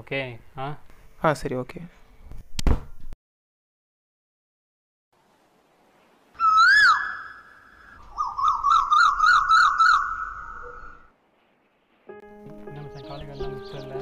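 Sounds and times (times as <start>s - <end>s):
bird whistling and trilling: 6.4s - 11.1s.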